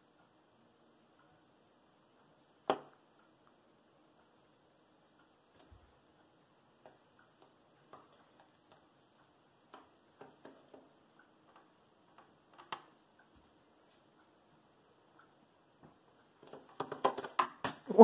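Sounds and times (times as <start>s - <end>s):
pigeon toenails tapping on wood: 15.8s - 18.0s.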